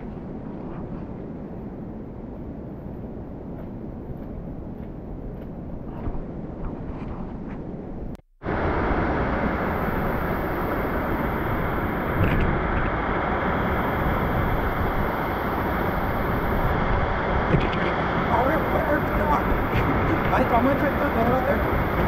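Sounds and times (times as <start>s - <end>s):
soft outdoor rush: 0.0s - 22.0s
waterfall roaring: 8.5s - 22.0s.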